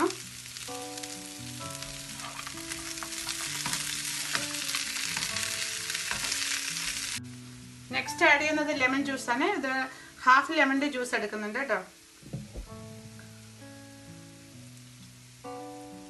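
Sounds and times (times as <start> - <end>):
potatoes sizzling in a pan: 0.0 - 16.0
soft background music: 0.0 - 16.0.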